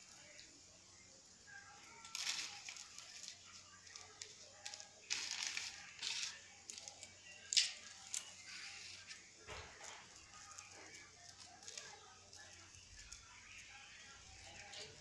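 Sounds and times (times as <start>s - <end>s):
beaded necklaces clinking: 2.0s - 13.3s.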